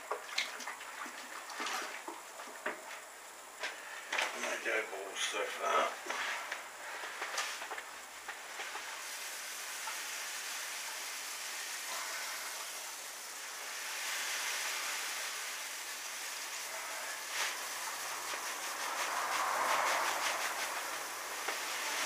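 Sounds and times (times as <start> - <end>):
grain pouring into water: 8.4 - 22.0.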